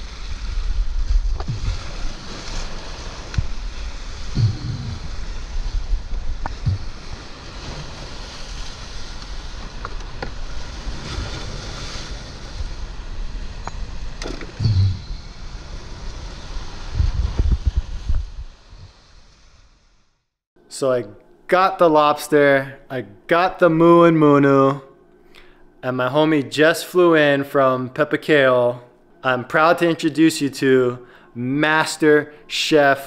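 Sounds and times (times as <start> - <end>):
waves washing over rocks: 0.0 - 13.6
low rumbling microphone bumps: 0.0 - 19.9.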